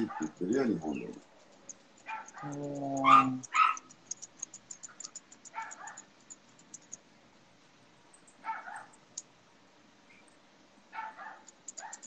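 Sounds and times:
scissors snipping hair: 0:00.0 - 0:06.0, 0:11.5 - 0:12.0.

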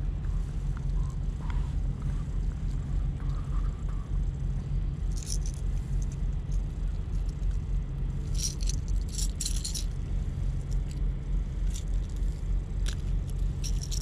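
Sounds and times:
steady low hum: 0:00.0 - 0:14.0
fishing lure rattling: 0:05.2 - 0:05.6, 0:08.3 - 0:09.9, 0:12.8 - 0:14.0
metal hooks clinking: 0:05.2 - 0:05.6, 0:08.3 - 0:10.0, 0:12.8 - 0:14.0.

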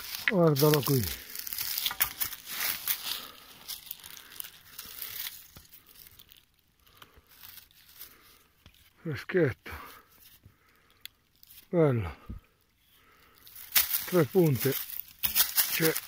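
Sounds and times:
dry leaves rustling and crunching: 0:00.0 - 0:08.7, 0:13.3 - 0:16.0.

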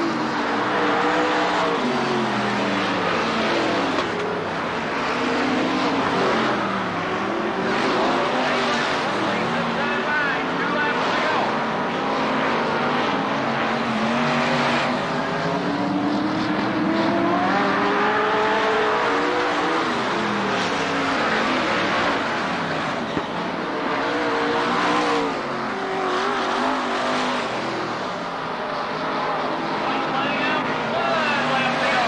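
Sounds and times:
race car engines revving: 0:00.0 - 0:32.0.

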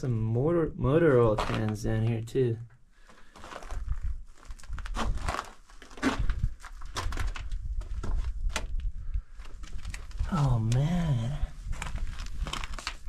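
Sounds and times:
footsteps on rock and planks: 0:03.0 - 0:10.2, 0:11.7 - 0:13.0.

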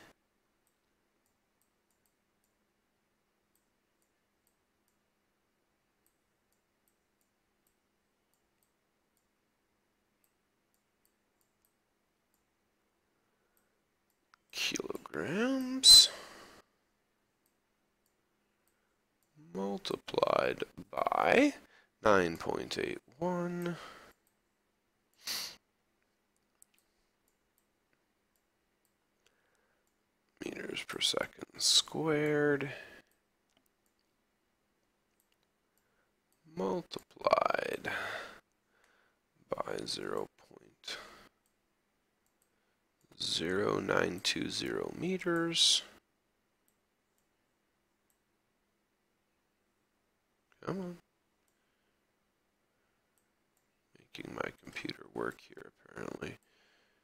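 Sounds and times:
person breathing: 0:16.1 - 0:16.8, 0:21.6 - 0:22.0, 0:23.7 - 0:24.2, 0:29.2 - 0:29.9, 0:37.9 - 0:39.2, 0:56.4 - 0:57.0.

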